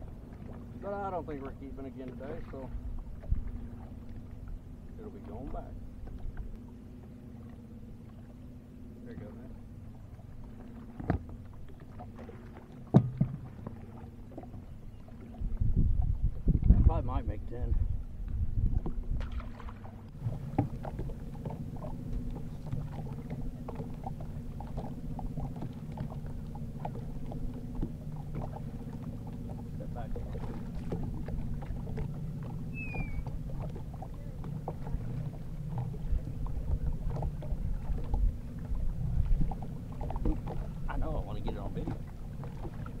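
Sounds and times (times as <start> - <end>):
boat motor humming: 0.0 - 43.0
short high chirp: 32.7 - 33.2.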